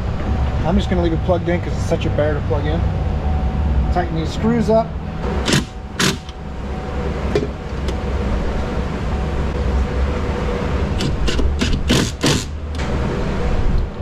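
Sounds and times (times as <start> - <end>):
steady low rumble: 0.0 - 14.0
cordless power driver tightening bolts: 5.5 - 6.4.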